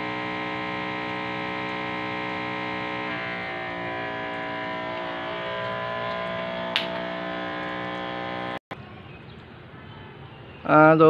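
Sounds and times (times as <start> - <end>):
electric water pump whining: 0.0 - 8.7.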